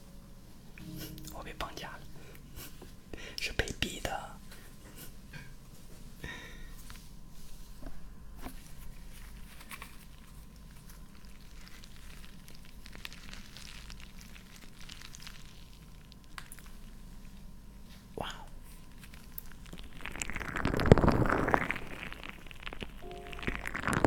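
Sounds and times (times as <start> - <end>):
stress ball squishing: 8.4 - 24.0.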